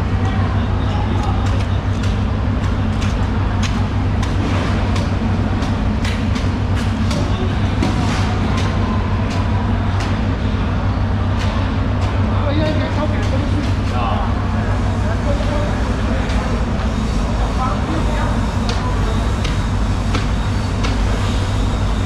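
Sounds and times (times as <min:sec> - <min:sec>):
sharp clicks and knocks: 0:01.2 - 0:10.3.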